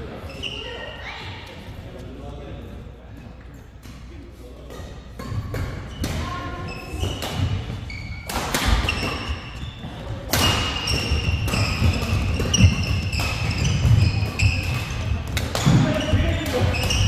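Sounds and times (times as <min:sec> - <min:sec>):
shoe squeaks on court floor: 0:00.2 - 0:01.0, 0:05.8 - 0:17.0
racket hitting shuttlecock: 0:04.7 - 0:06.3, 0:06.9 - 0:09.5, 0:10.3 - 0:17.0
distant badminton play: 0:04.7 - 0:17.0.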